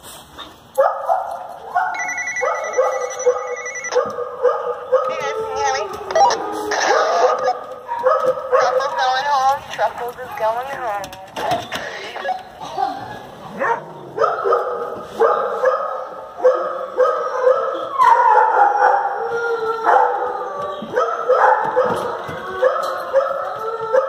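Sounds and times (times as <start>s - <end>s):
dogs barking: 0.8s - 9.5s, 13.5s - 24.0s
dog howling: 4.9s - 7.6s, 17.3s - 24.0s.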